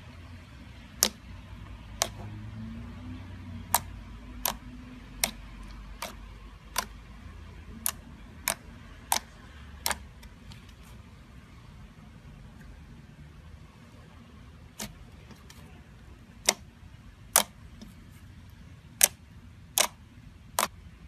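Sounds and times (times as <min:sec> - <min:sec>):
low steady hum: 0:00.0 - 0:21.0
slime clicking pops: 0:17.3 - 0:17.5.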